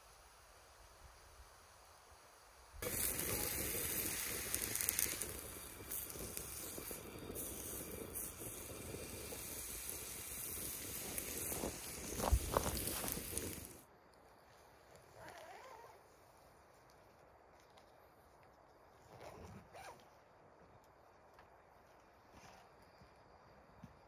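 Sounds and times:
steak sizzling on a grill: 2.8 - 13.8.

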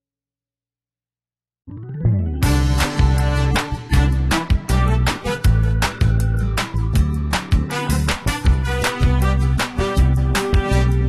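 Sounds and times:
low bass line: 1.7 - 7.1
background music with drum beat: 2.4 - 11.0.

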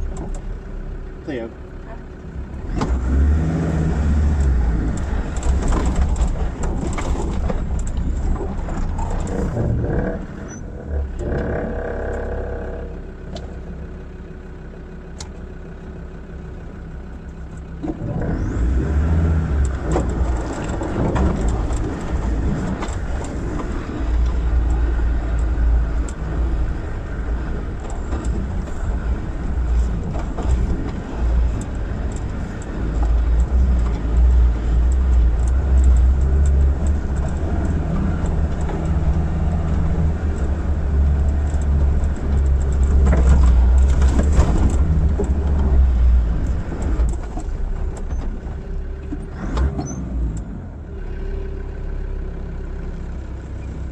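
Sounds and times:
diesel engine pulling at low speed: 0.0 - 53.9
vehicle knocks and rattles: 4.6 - 13.6, 19.7 - 50.0.

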